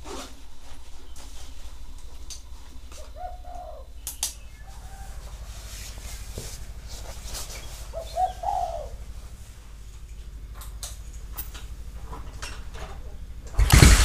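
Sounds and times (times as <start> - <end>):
low pulsing hum: 0.0 - 14.0
bird low arching calls: 2.8 - 5.2, 7.6 - 9.0.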